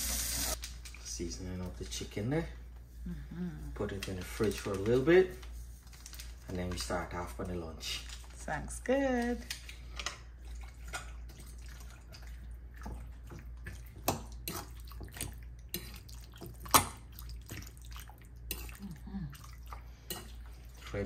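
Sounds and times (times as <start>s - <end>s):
wet squelching: 10.4s - 21.0s.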